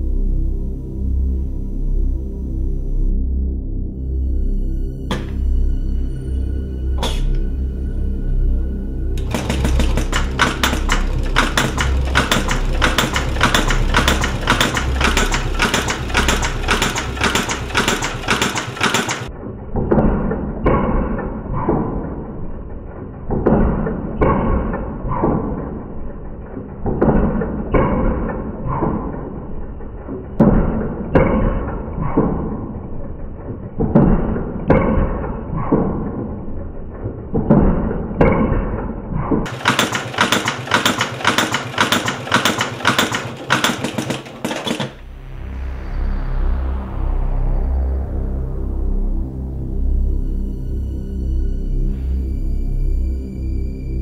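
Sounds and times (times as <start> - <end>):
sewing machine stitching leather: 9.2 - 19.3, 39.4 - 45.0.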